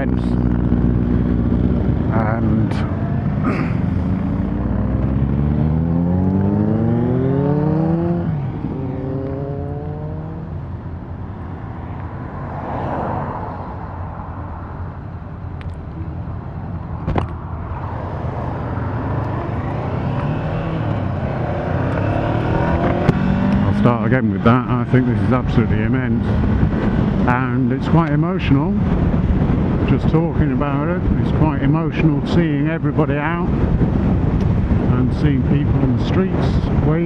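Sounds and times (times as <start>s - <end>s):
motorcycle engine accelerating: 0.0s - 10.6s, 17.7s - 31.6s
car passing: 0.0s - 29.8s
wind noise on microphone: 11.5s - 37.0s.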